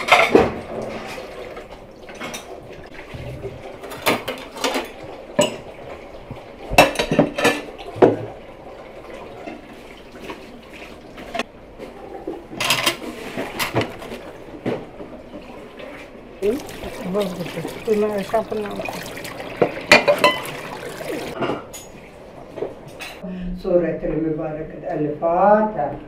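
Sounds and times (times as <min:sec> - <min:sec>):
plates and cutlery clattering: 0:00.0 - 0:01.2, 0:06.8 - 0:08.3, 0:19.5 - 0:22.0.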